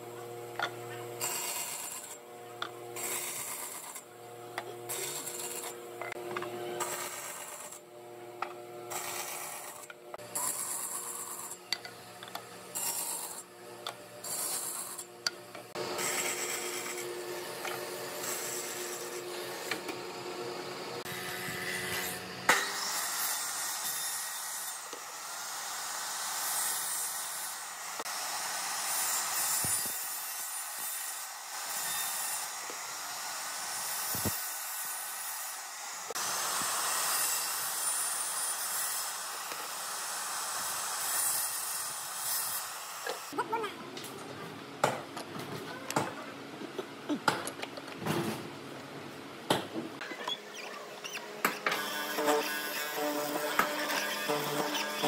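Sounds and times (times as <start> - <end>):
bandsaw cutting wood: 0.6 - 2.2, 2.9 - 15.1, 15.7 - 43.4, 51.2 - 55.0
miter saw whining through wood: 15.7 - 43.4, 50.1 - 55.0.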